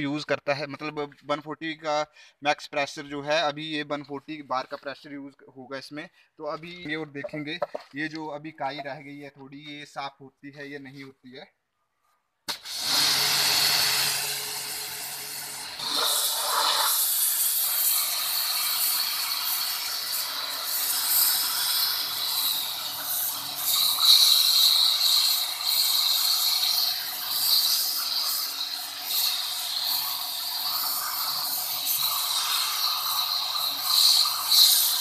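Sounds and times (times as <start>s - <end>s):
pressure washer pump hum: 12.5s - 35.0s
water jet hissing on stone: 12.5s - 35.0s.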